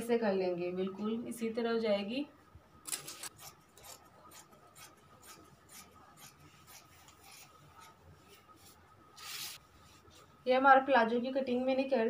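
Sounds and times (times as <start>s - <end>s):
scissors cutting cloth: 2.9s - 7.9s.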